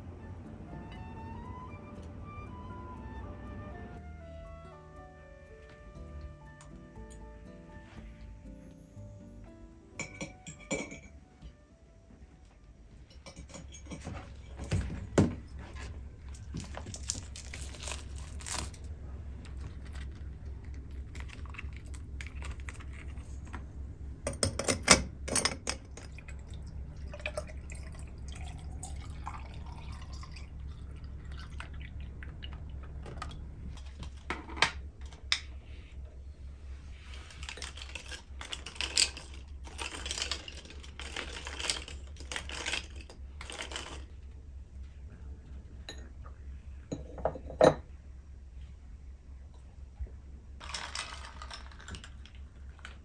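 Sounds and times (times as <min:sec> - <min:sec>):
low hum: 0:10.9 - 0:53.0
crackly rustling of handling: 0:14.0 - 0:23.8, 0:35.0 - 0:45.1
milk pouring with gurgle: 0:26.0 - 0:34.2
ice cubes clinking into glass: 0:37.4 - 0:44.1, 0:50.6 - 0:52.9.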